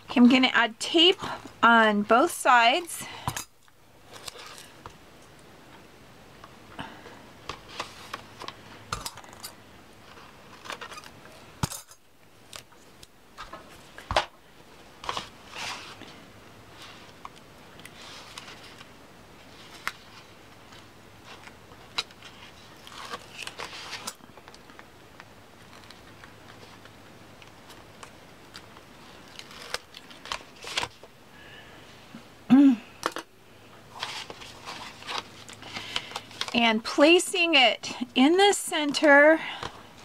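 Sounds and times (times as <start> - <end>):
paper and tape rustling: 15.0 - 24.8, 27.6 - 31.1, 33.9 - 36.6.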